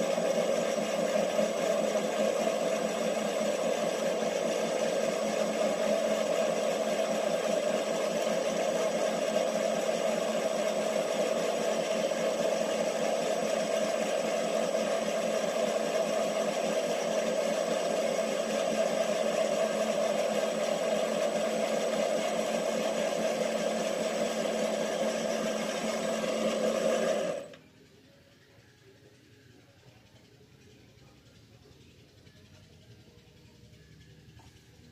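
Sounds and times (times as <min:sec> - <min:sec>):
metal lathe motor whining: 0:00.0 - 0:27.6.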